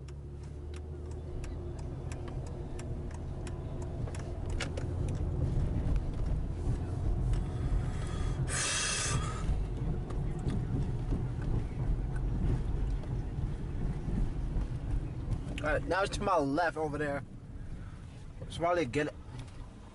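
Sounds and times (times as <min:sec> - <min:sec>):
light ticks: 0:00.0 - 0:06.4
car engine and road noise: 0:00.0 - 0:19.9.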